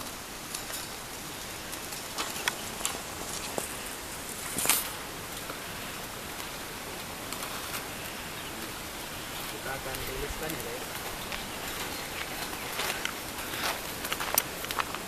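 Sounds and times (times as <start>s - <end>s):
steady hiss: 0.0s - 15.0s
footsteps crunching on gravel: 1.8s - 5.0s, 9.5s - 15.0s
clicks and small scrapes: 4.4s - 5.0s.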